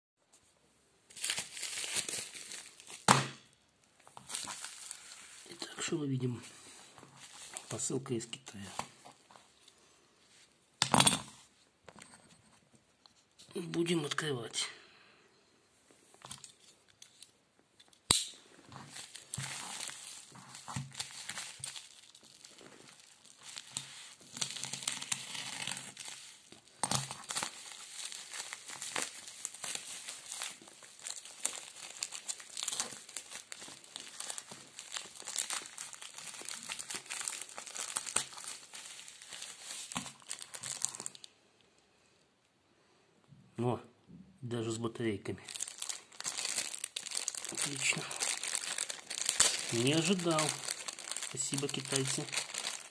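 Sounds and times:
plastic mailer tearing and crinkling: 0:01.1 - 0:03.2, 0:04.2 - 0:05.7, 0:18.7 - 0:41.2, 0:45.4 - 0:52.9.

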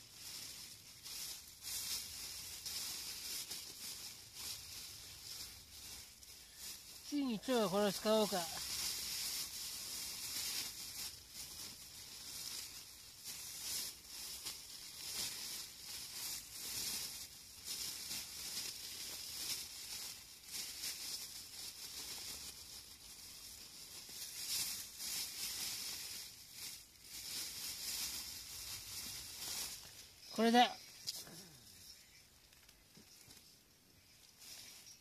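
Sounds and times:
plastic bag rustling: 0:00.0 - 0:35.0.

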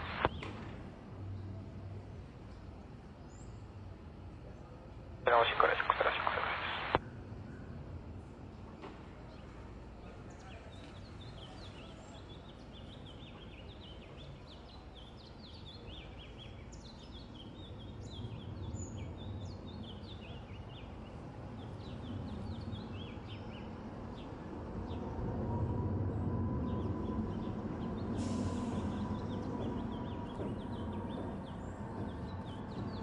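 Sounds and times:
jet engines rumbling: 0:00.0 - 0:00.3, 0:05.3 - 0:07.0.

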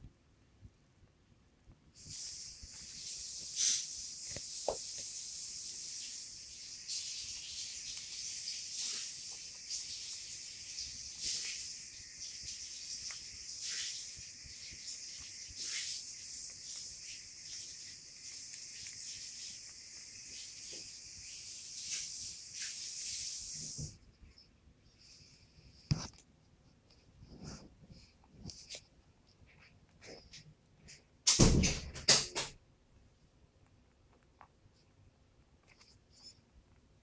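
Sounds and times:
steady high hiss: 0:00.0 - 0:37.0
rabbit crunching food: 0:02.0 - 0:23.8, 0:33.5 - 0:37.0.

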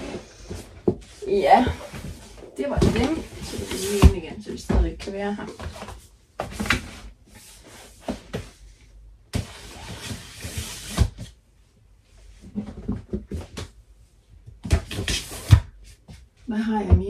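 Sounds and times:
box scraping along shelf: 0:00.0 - 0:04.7, 0:09.4 - 0:11.3
boxes knocking: 0:00.8 - 0:05.1.

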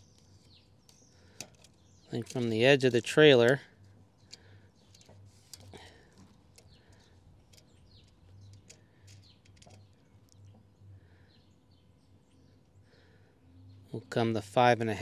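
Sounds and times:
birds chirping: 0:00.0 - 0:15.0
faint low hum: 0:00.0 - 0:15.0.

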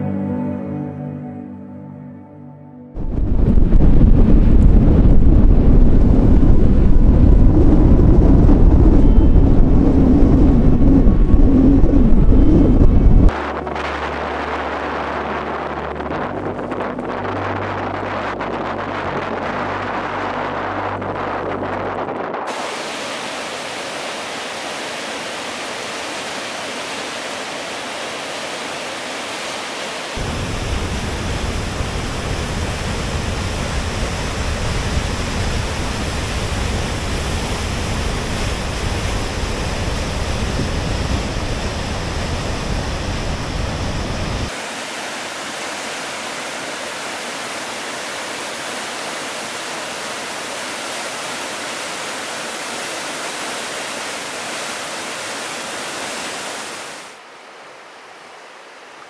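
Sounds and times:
river rushing through rapids: 0:22.5 - 0:59.0.

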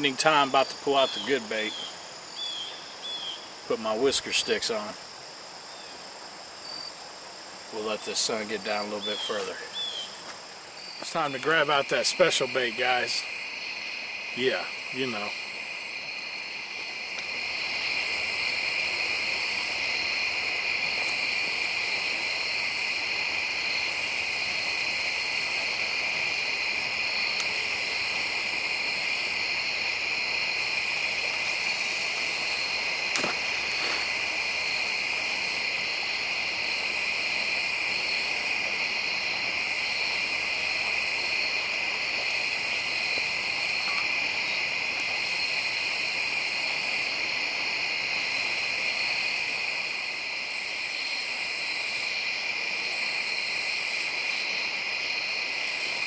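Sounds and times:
insects trilling: 0:00.0 - 0:56.0
shrill insect call: 0:00.0 - 0:56.0.

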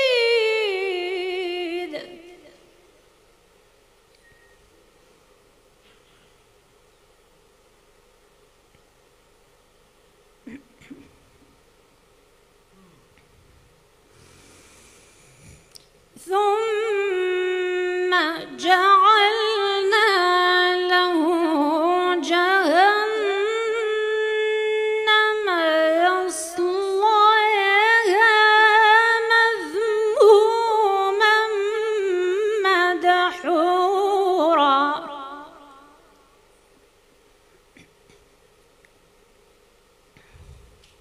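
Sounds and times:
woman reciting melodically: 0:00.0 - 0:02.8, 0:16.2 - 0:36.2.

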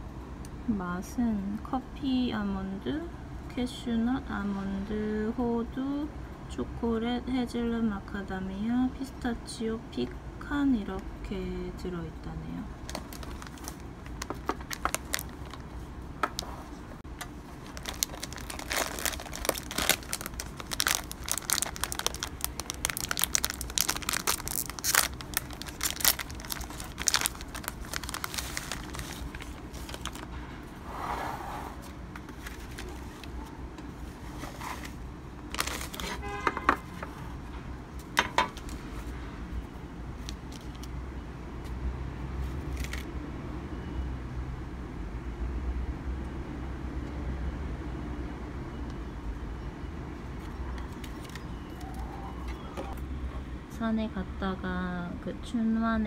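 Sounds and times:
low steady hum: 0:00.0 - 0:41.6
plastic wrapping crinkling: 0:12.8 - 0:16.5, 0:17.2 - 0:30.3, 0:32.2 - 0:36.3, 0:40.2 - 0:40.9, 0:42.7 - 0:43.1, 0:50.4 - 0:52.0.

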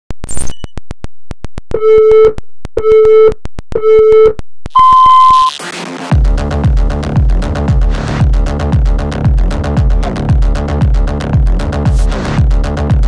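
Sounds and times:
countdown beeps: 0:01.8 - 0:05.5
long high beep: 0:01.8 - 0:05.5
electronic dance music: 0:05.5 - 0:13.0.

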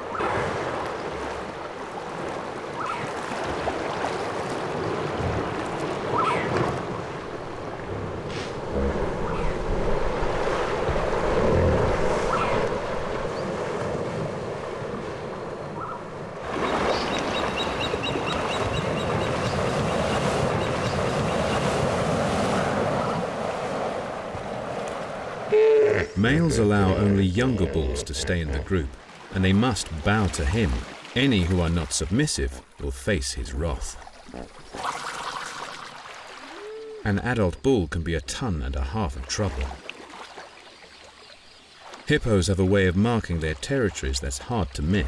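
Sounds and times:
hippopotamus calls: 0:25.5 - 0:29.0.

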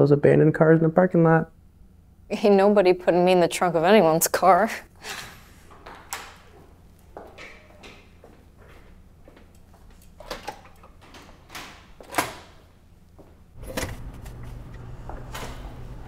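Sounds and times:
footsteps: 0:05.7 - 0:10.2, 0:13.1 - 0:16.0
steady low hum: 0:12.6 - 0:16.0.

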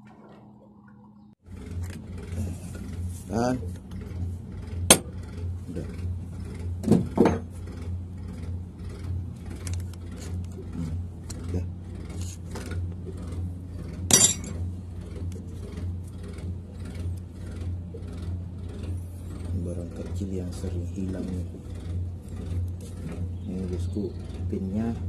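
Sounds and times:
steady low hum: 0:00.0 - 0:25.0
metal parts clinking and tapping: 0:14.1 - 0:14.6.

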